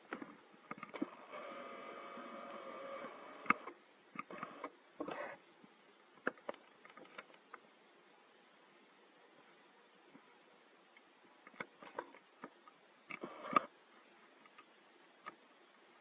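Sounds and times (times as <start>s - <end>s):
camera zoom motor whining: 1.0s - 4.7s, 13.2s - 13.7s
sharp clicks: 2.4s - 4.8s, 11.5s - 13.7s.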